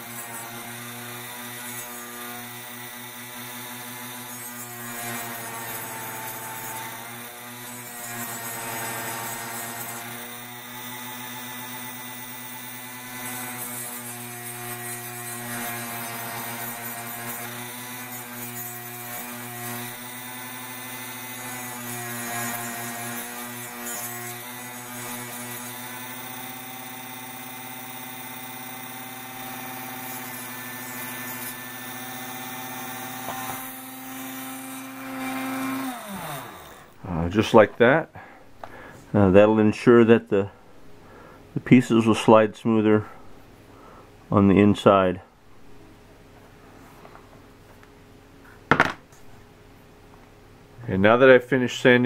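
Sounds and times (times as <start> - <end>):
rotary tool motor whine: 0.0 - 37.2.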